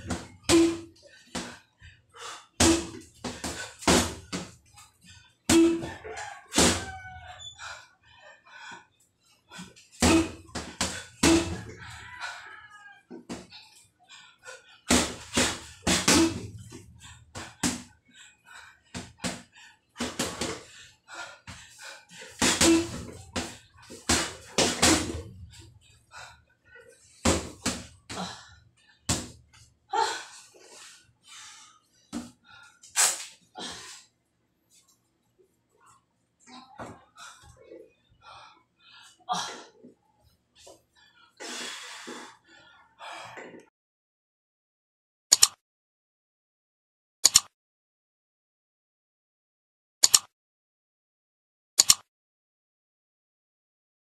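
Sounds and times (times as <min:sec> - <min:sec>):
punches thudding on punching bag: 0:02.6 - 0:04.5.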